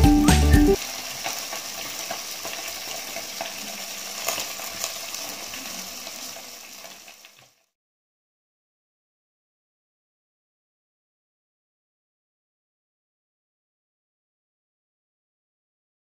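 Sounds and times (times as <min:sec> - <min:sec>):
background music: 0:00.0 - 0:00.8
crackling hiss with small ticks: 0:00.8 - 0:07.7.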